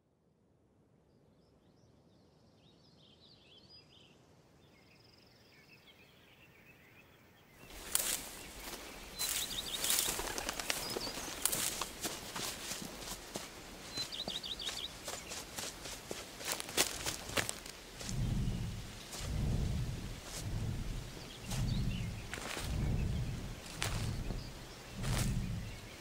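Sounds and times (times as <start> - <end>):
birds chirping: 4.7 - 26.0
footsteps through plants: 7.6 - 26.0.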